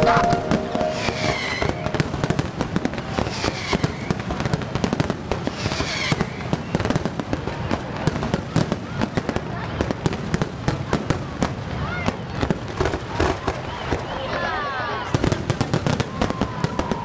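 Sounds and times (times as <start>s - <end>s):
falling firework whistles: 0.0s - 4.2s, 5.5s - 6.8s
fireworks crackling and popping: 0.0s - 14.1s.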